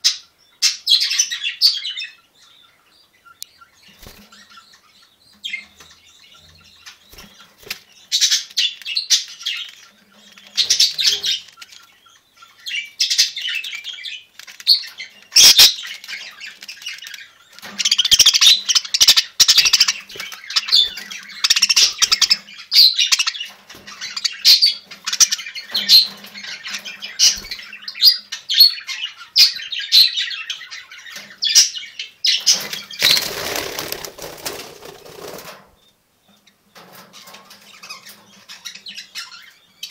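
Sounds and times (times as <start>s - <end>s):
budgerigars chattering and chirping: 0.0s - 36.6s, 37.2s - 39.9s.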